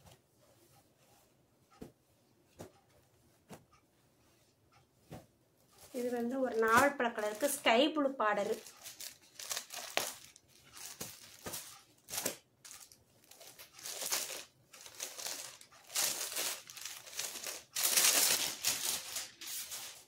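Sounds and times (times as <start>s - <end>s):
packing sheet crinkling: 8.4s - 20.0s.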